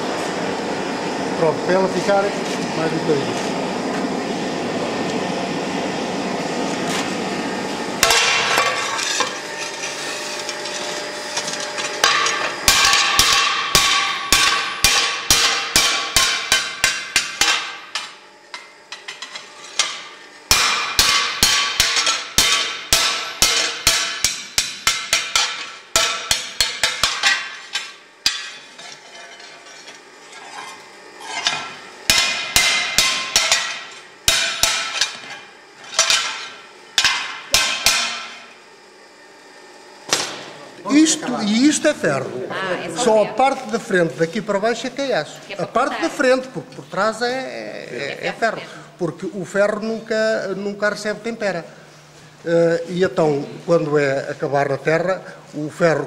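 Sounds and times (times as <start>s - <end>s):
hammer ringing on anvil: 12.0s - 17.8s, 20.5s - 27.4s.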